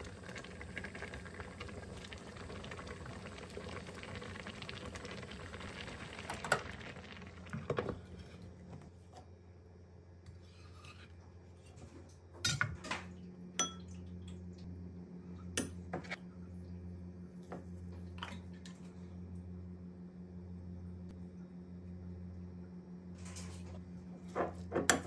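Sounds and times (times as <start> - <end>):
low steady hum: 0.0 - 25.0
metal spoon clinking in bowl: 13.6 - 13.9.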